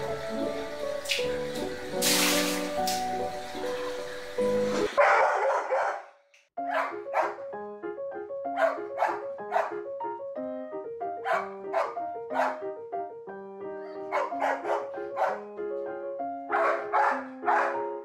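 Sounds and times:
piano music: 0.0 - 5.1, 6.6 - 18.0
dog barking: 5.0 - 7.5, 8.5 - 9.8, 11.2 - 12.6, 14.0 - 15.5, 16.5 - 18.0.

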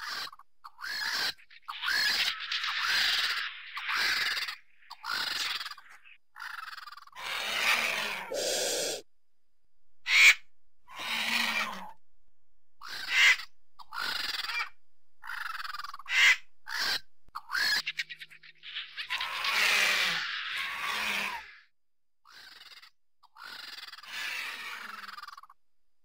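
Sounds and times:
vultures harsh hoarse calls: 0.0 - 9.0, 10.1 - 12.0, 18.5 - 21.7, 22.3 - 25.6.

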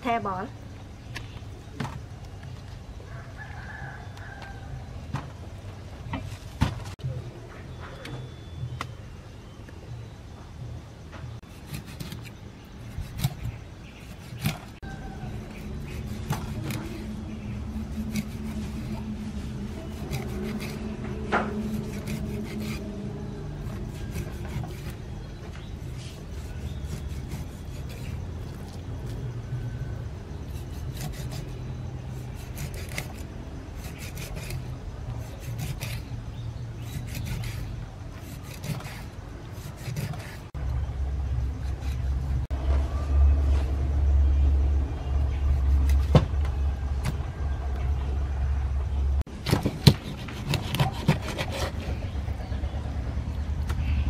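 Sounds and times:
low background rumble: 8.5 - 54.0
knife scraping on chopping board: 15.4 - 22.9, 23.6 - 25.0, 25.9 - 28.2, 30.5 - 36.1, 36.8 - 40.6, 49.6 - 52.1.

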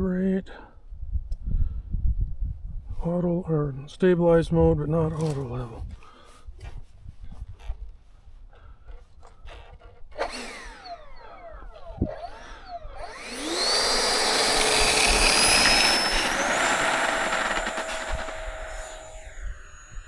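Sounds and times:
electric ducted fan whining: 10.1 - 20.0.

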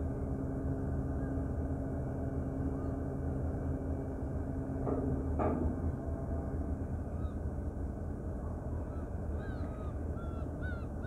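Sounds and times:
ship engines rumbling: 0.0 - 11.0
gull calling: 7.1 - 7.5, 8.7 - 11.0.

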